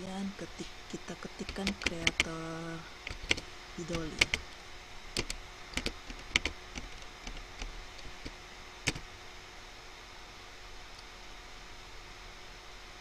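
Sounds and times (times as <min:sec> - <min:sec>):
computer keyboard keys clicking: 0:01.4 - 0:02.4, 0:03.0 - 0:04.5, 0:05.2 - 0:09.0.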